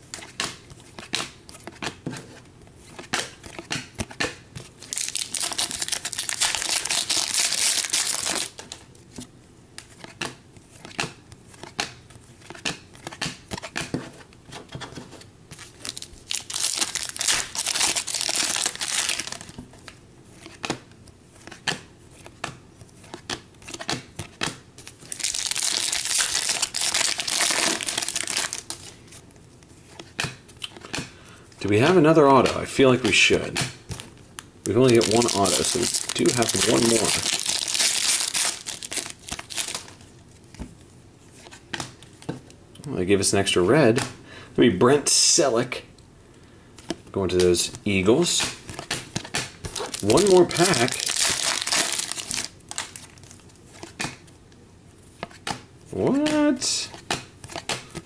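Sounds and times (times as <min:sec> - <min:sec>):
foil wrappers crinkling and tearing: 0:04.8 - 0:08.8, 0:15.6 - 0:19.6, 0:24.9 - 0:28.9, 0:34.6 - 0:40.0, 0:48.2 - 0:53.9
stiff cards clicking and snapping: 0:55.2 - 0:58.0.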